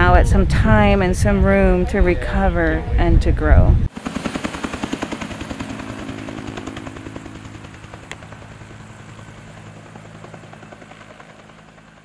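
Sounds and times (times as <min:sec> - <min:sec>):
helicopter rotor blades beating: 0:03.5 - 0:12.0.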